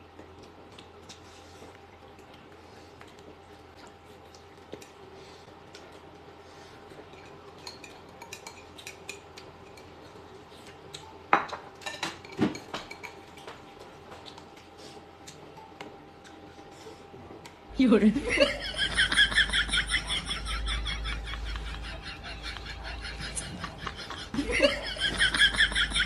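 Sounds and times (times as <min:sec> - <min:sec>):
chopsticks and bowls clinking: 0:07.1 - 0:10.2, 0:11.0 - 0:13.5.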